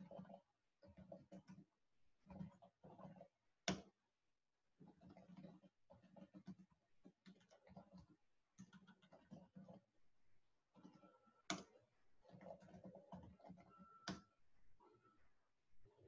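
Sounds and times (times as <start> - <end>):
computer keyboard typing: 4.9 - 9.9, 10.7 - 15.1.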